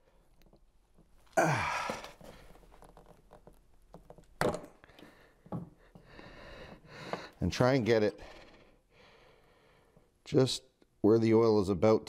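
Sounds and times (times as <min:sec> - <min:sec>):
man sighing: 0:01.3 - 0:02.5.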